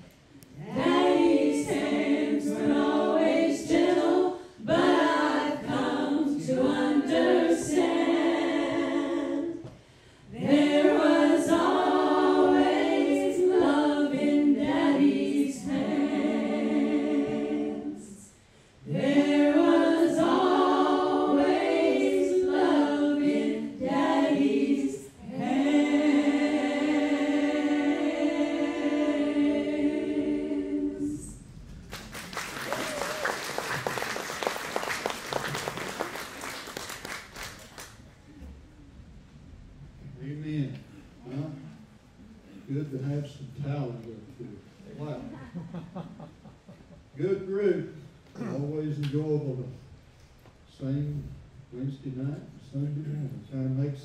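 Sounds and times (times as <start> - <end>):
women singing gospel in harmony: 0.5 - 31.5.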